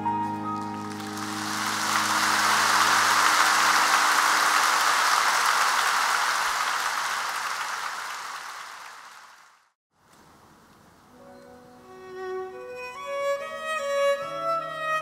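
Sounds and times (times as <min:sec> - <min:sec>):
audience applauding: 0:00.6 - 0:09.7.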